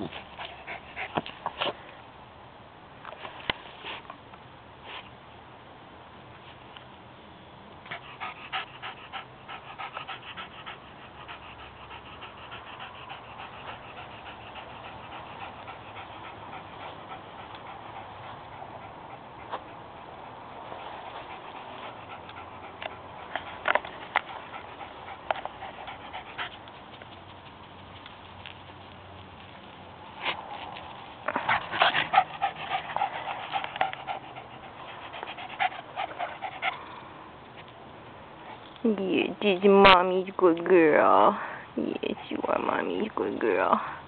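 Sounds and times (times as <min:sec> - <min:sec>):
dog panting: 0:00.0 - 0:01.7, 0:07.8 - 0:29.3, 0:30.1 - 0:37.0, 0:41.2 - 0:43.8.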